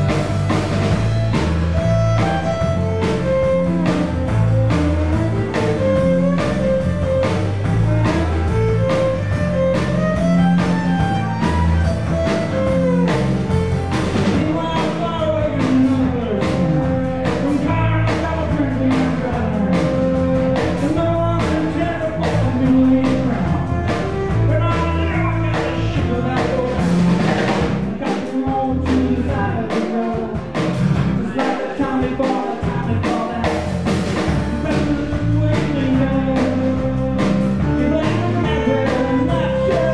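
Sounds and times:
violin: 0:00.0 - 0:15.4, 0:16.1 - 0:26.8, 0:35.4 - 0:39.9
drum kit beat: 0:00.0 - 0:39.9.

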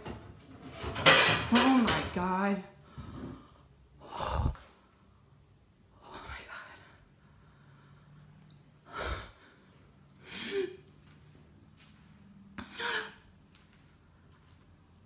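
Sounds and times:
person breathing heavily: 0:02.8 - 0:05.0, 0:06.0 - 0:10.9.

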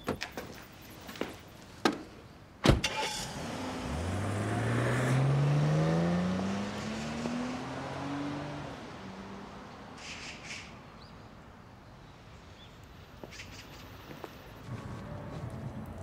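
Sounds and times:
car accelerating away: 0:02.9 - 0:09.7.

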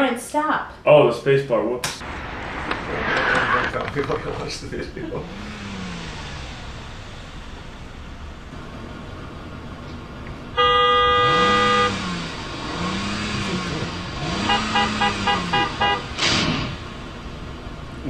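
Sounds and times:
car engine revving: 0:01.9 - 0:18.0
car horn blasts and toots: 0:10.5 - 0:12.3, 0:14.2 - 0:16.5.

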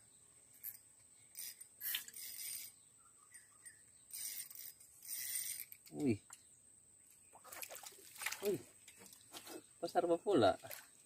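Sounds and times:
fishing reel gears whirring: 0:01.4 - 0:02.8, 0:04.1 - 0:05.9.

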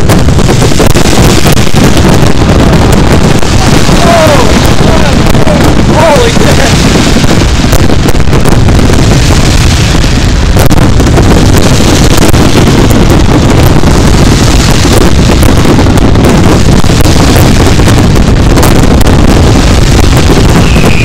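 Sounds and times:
fireworks bursting and crackling: 0:00.0 - 0:21.0.

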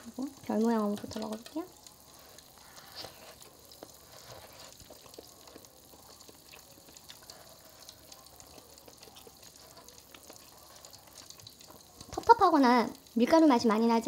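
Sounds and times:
soup bubbling in a pot: 0:00.0 - 0:14.0.

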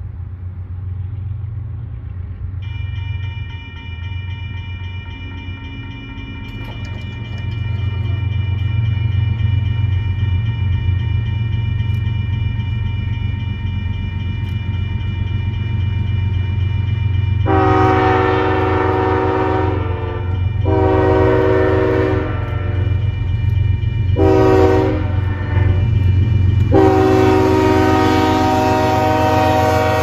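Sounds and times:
diesel locomotive engine rumble: 0:00.0 - 0:30.0
train air horn blasts: 0:17.4 - 0:23.0, 0:24.2 - 0:25.9, 0:26.6 - 0:30.0.

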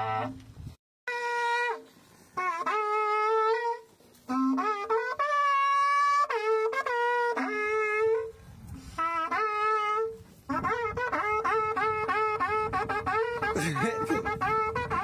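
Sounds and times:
cattle horn blasts: 0:00.0 - 0:00.4.

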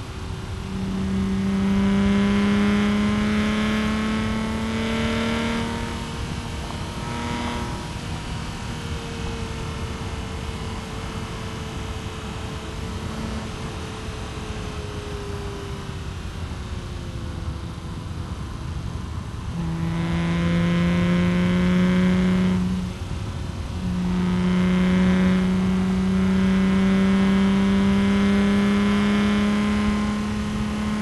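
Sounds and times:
car engine from inside cabin: 0:00.0 - 0:31.0.

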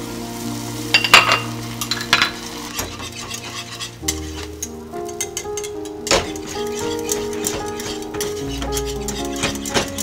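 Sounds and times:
egg sizzling in butter: 0:00.0 - 0:10.0
whisk scraping and tapping saucepan: 0:02.8 - 0:10.0.

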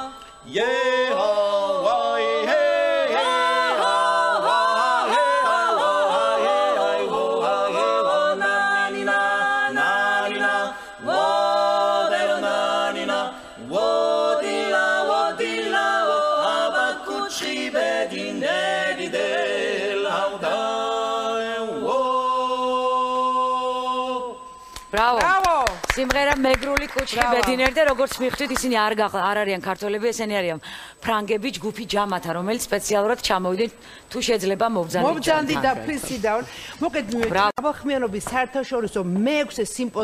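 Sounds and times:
a cappella polyphonic singing: 0:00.0 - 0:24.7.

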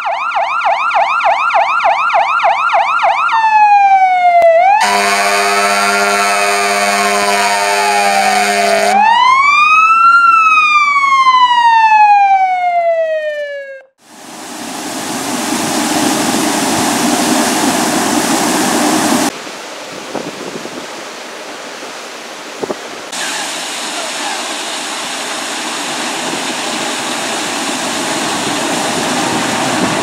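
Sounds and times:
siren rising and falling: 0:00.0 - 0:14.0
water gushing from broken main: 0:23.1 - 0:30.0.

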